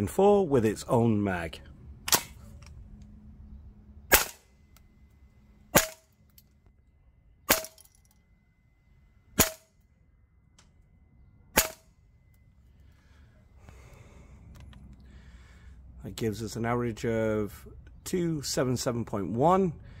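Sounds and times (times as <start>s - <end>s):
airsoft rifle shots: 2.0s - 2.4s, 4.1s - 4.5s, 5.7s - 6.1s, 9.4s - 9.7s, 11.5s - 11.9s.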